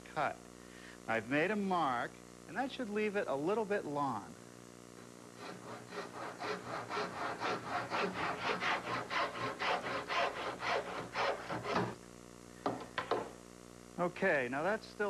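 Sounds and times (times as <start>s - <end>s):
hand saw cutting wood: 5.4s - 12.0s.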